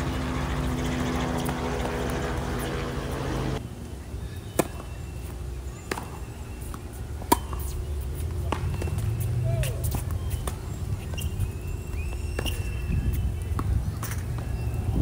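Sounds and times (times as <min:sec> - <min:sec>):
low engine-like hum: 0:00.0 - 0:15.0
tennis ball struck by rackets: 0:07.2 - 0:07.8.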